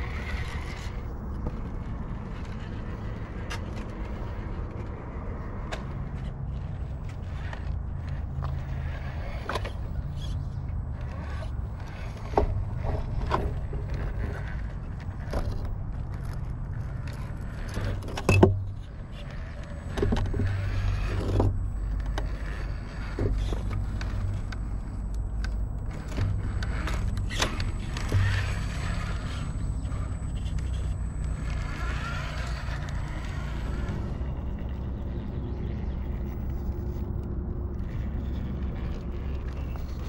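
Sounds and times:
tires clicking and scraping on rock: 0:00.0 - 0:40.0
electric motor whirring: 0:19.2 - 0:40.0.

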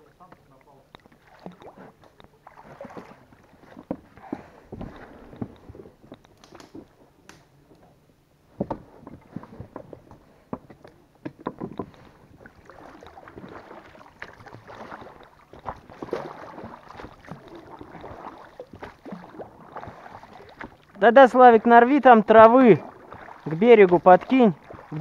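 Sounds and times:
water swishing: 0:00.0 - 0:06.0, 0:11.8 - 0:25.0.

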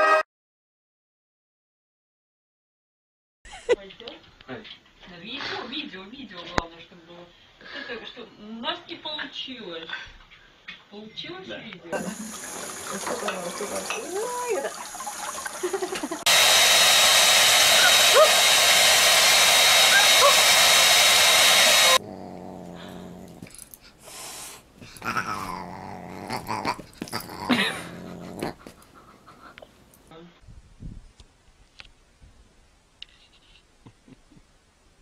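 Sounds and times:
dog grumbling and whimpering: 0:21.8 - 0:23.7, 0:24.8 - 0:29.5.

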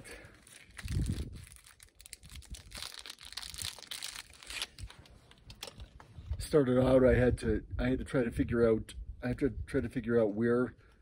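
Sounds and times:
crackling rustling noise: 0:00.0 - 0:06.4
wind buffeting microphone: 0:00.7 - 0:03.7, 0:05.8 - 0:10.0.

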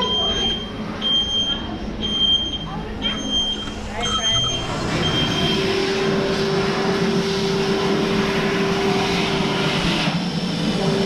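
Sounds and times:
steady mechanical hum: 0:00.0 - 0:11.0
rushing noise: 0:04.6 - 0:11.0.

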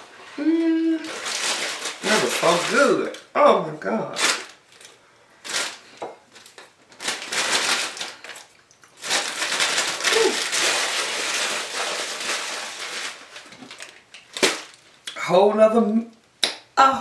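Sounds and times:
plastic bag crinkling: 0:00.8 - 0:03.3, 0:04.1 - 0:15.0.

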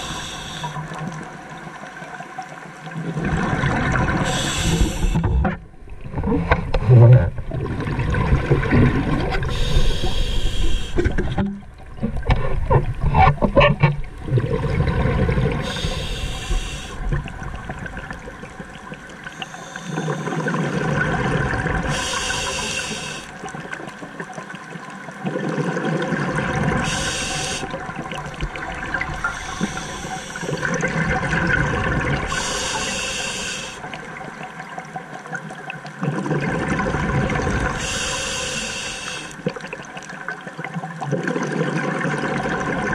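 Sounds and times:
hissing regulator inhalations: 0:00.0 - 0:00.8, 0:04.3 - 0:05.3, 0:09.5 - 0:11.2, 0:15.6 - 0:17.1, 0:19.3 - 0:20.5, 0:21.9 - 0:23.3, 0:26.8 - 0:27.7, 0:29.1 - 0:30.6, 0:32.3 - 0:33.9, 0:37.7 - 0:39.4
bubbling exhaust underwater: 0:00.0 - 0:01.8, 0:02.9 - 0:42.9.

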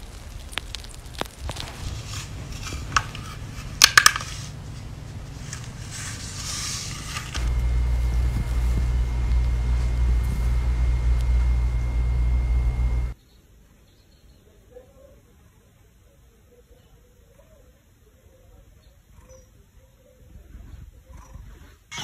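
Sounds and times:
cat purring: 0:20.3 - 0:21.8.

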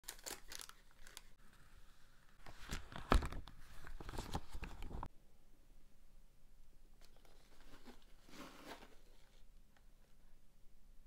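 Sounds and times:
plastic packaging crinkling: 0:00.0 - 0:01.4.

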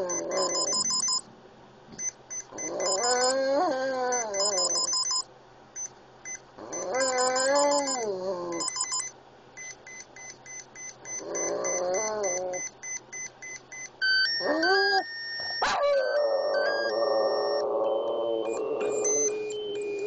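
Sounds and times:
electronic beeping tune: 0:00.3 - 0:01.2, 0:16.3 - 0:20.0
dog howling: 0:14.4 - 0:19.3.

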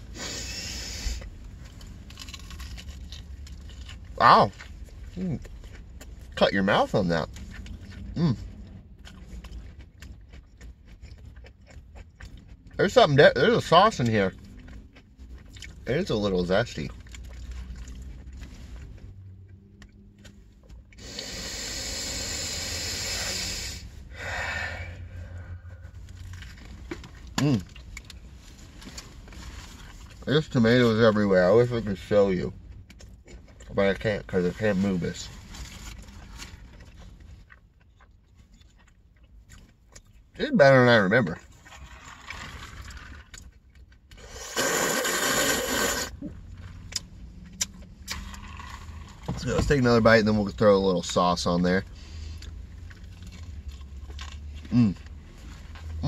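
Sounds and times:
man breathing out through nose: 0:21.0 - 0:25.7
sipping through a straw: 0:44.2 - 0:46.2.

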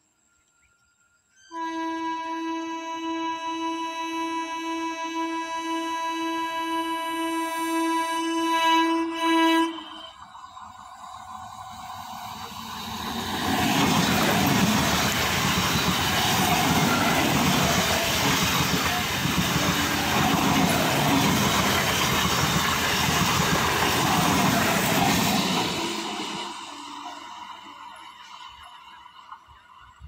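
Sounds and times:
train passing at speed: 0:04.8 - 0:30.0
wheels rushing on rails: 0:09.5 - 0:30.0.

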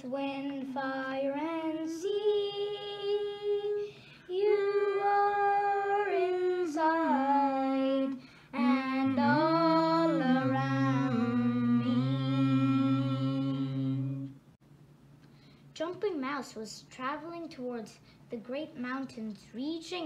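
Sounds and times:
lower voice singing: 0:02.0 - 0:14.4
person singing slow melody: 0:02.2 - 0:14.4.

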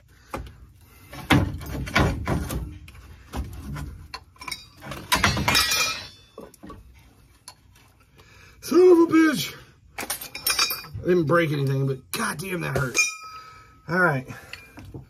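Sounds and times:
metal suspension parts clunking: 0:00.1 - 0:08.1, 0:09.9 - 0:15.0
metallic clang with ringing: 0:04.4 - 0:06.4, 0:10.0 - 0:11.0, 0:12.8 - 0:13.6.

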